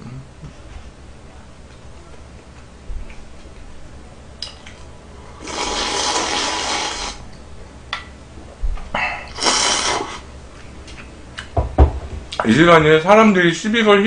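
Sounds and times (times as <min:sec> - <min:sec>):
person slurping noodles: 0:05.4 - 0:07.2, 0:09.2 - 0:10.3.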